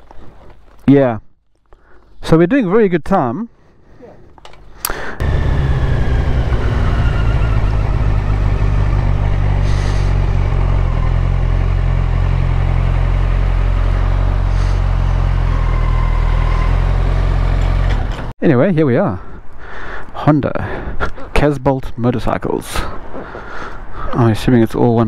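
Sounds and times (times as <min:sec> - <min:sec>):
motorcycle engine running: 0:05.2 - 0:18.3.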